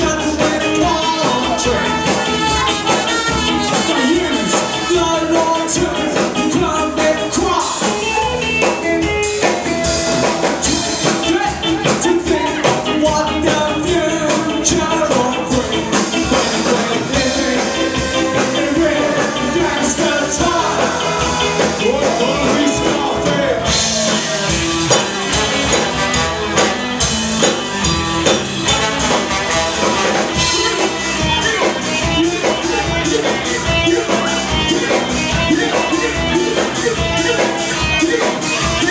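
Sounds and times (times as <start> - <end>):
person singing: 0.0 - 26.6, 28.6 - 38.9
bass guitar: 0.0 - 38.9
drum kit: 0.0 - 38.9
electric guitars: 0.0 - 38.9
saxophone and trombone: 1.1 - 5.7, 24.4 - 31.4.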